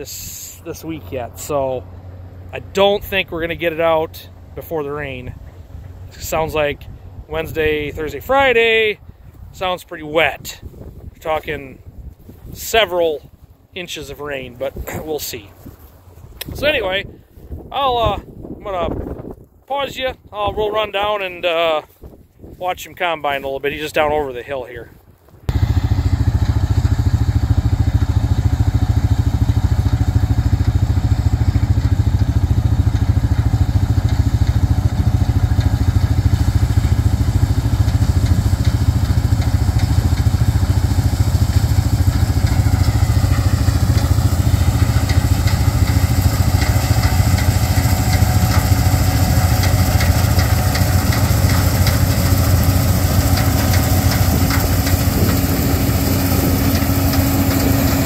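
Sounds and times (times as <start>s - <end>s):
combine harvester engine running: 0.0s - 10.4s, 25.5s - 58.0s
threshing machinery: 25.5s - 58.0s
rattly clatter: 27.3s - 58.0s.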